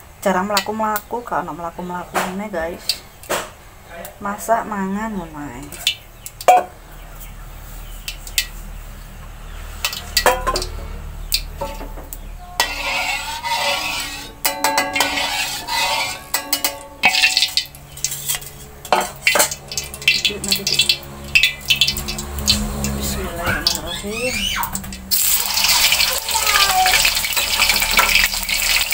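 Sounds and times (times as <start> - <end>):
metal utensils clanking on wok: 0.3 - 0.8, 2.1 - 3.6, 9.7 - 28.9.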